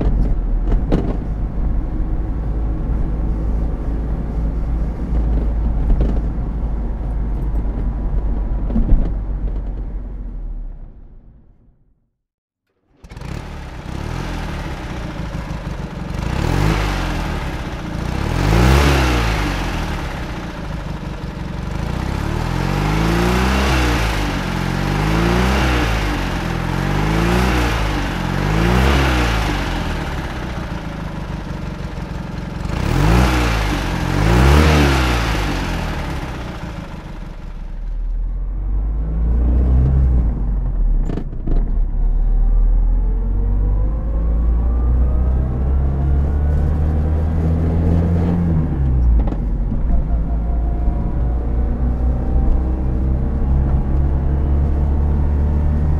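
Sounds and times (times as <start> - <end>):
small engine revving and idling: 12.8 - 55.9.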